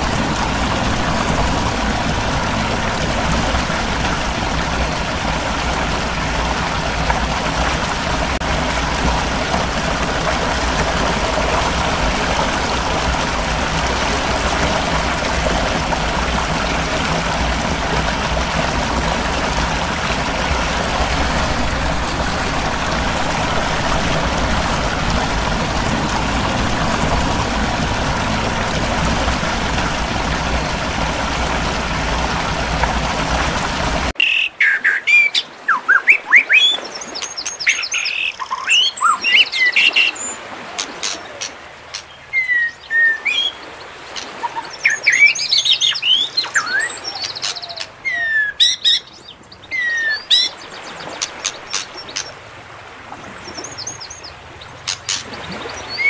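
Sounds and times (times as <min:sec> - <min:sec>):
waterfall roaring: 0:00.0 - 0:48.8, 0:49.7 - 0:56.0
birds chirping and singing: 0:44.5 - 0:50.6.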